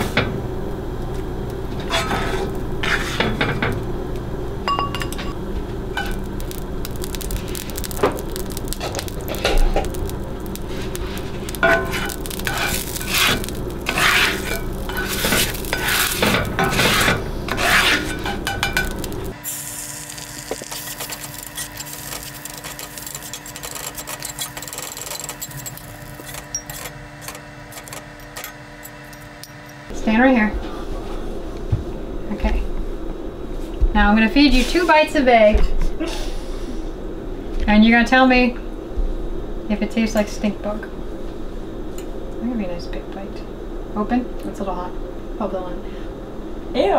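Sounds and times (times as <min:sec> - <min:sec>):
spatula scraping a skillet: 0:01.8 - 0:03.4, 0:10.5 - 0:19.4.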